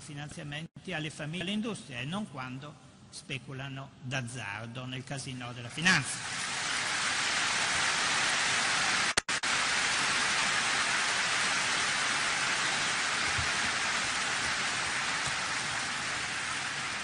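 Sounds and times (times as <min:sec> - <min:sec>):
large audience applauding: 0:06.2 - 0:17.0.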